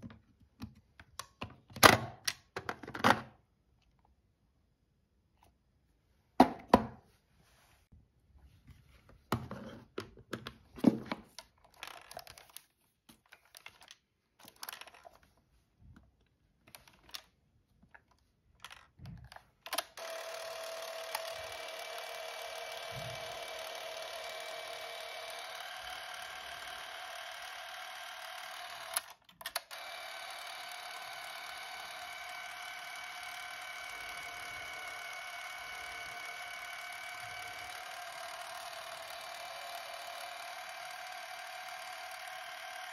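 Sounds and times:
movie camera motor whirring: 19.7 - 42.9.

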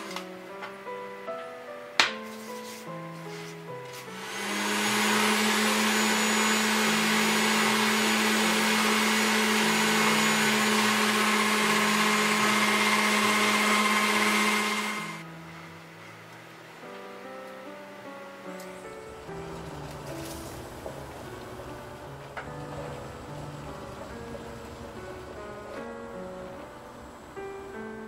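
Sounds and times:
pasta machine motor humming: 3.9 - 15.2, 19.1 - 28.0.

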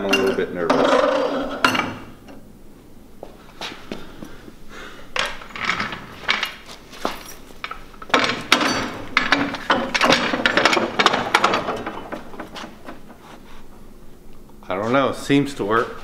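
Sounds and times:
metal floor jack clanking: 0.0 - 2.4, 7.6 - 13.1.

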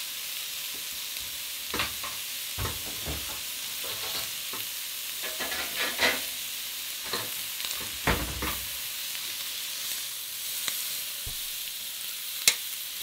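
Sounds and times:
meat sizzling on a grill pan: 0.0 - 13.0
metal tongs clicking on pan: 12.4 - 12.7.

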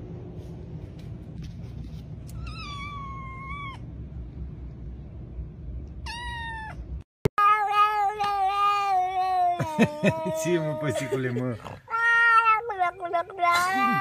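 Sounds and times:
low steady hum: 0.0 - 14.0
cat meowing: 2.3 - 3.8, 6.0 - 6.8, 7.4 - 14.0.

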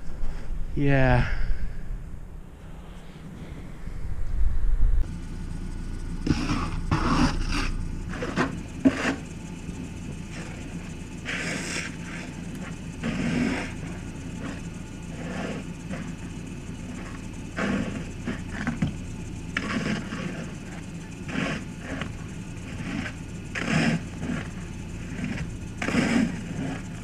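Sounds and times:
steady low hum: 0.0 - 27.0
brush sweeping snow: 6.2 - 9.3.

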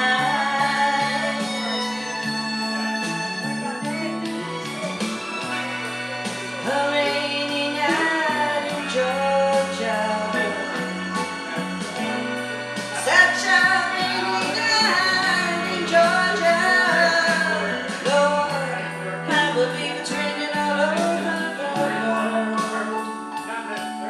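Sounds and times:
woman singing wordless lines: 0.0 - 1.4, 6.6 - 10.8, 13.0 - 22.8
slow soul ballad accompaniment: 0.0 - 24.0.

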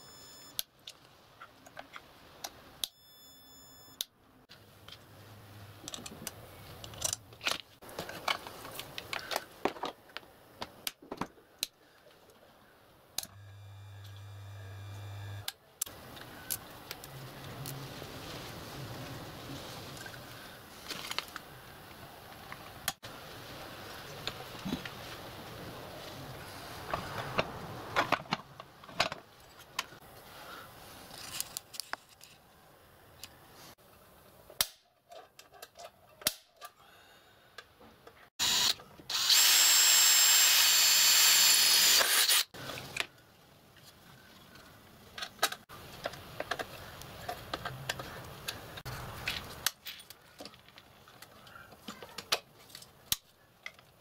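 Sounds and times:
cordless drill running: 38.4 - 42.5.

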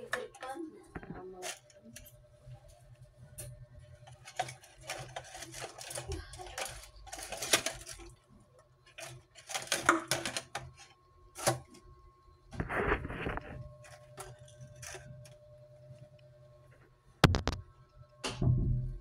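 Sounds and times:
plastic bottles clicking: 9.0 - 10.8.

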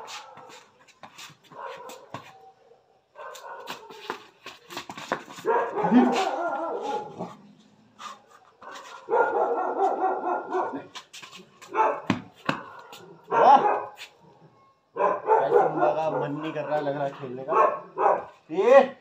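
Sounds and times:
puppy barking: 1.5 - 4.0, 5.4 - 7.4, 8.6 - 10.9, 11.7 - 14.0, 15.0 - 18.4
football being kicked: 12.0 - 12.7.

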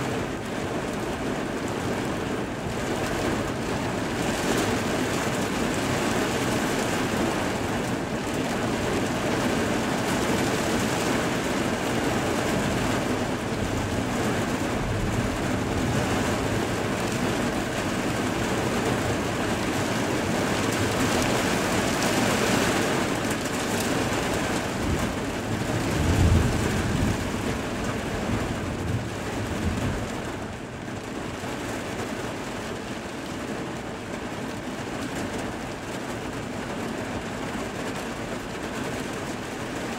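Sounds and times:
heavy rain falling: 0.0 - 39.9
low rumble of thunder: 11.8 - 19.4, 24.6 - 31.1.

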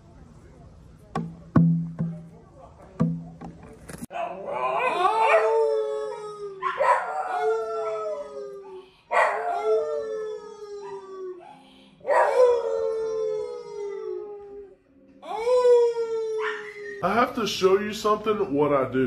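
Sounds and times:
dog howling: 4.1 - 17.1
man howling: 4.3 - 17.2.

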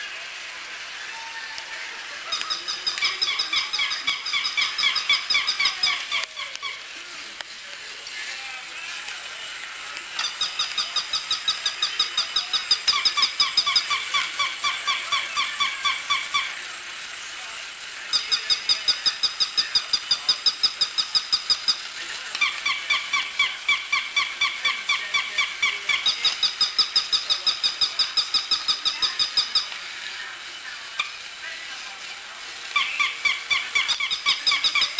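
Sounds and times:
toy dogs electronic chirping: 2.2 - 6.9, 10.1 - 16.6, 18.1 - 29.8, 32.7 - 34.9.

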